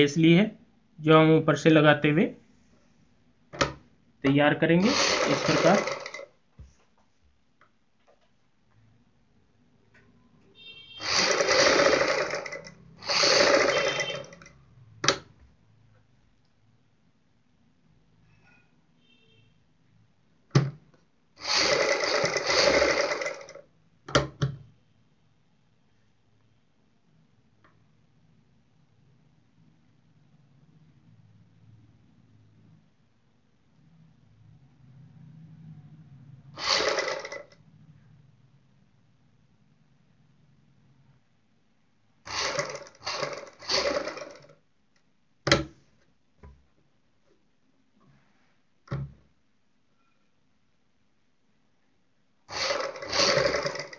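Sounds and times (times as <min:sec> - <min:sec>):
sewing machine stitching: 0:04.8 - 0:06.3, 0:11.0 - 0:15.3, 0:21.4 - 0:24.2, 0:36.5 - 0:37.6, 0:42.2 - 0:44.6, 0:52.5 - 0:53.9.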